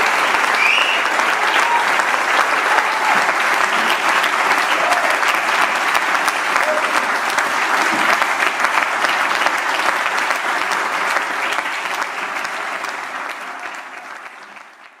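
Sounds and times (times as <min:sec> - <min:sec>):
audience applauding: 0:00.0 - 0:15.0.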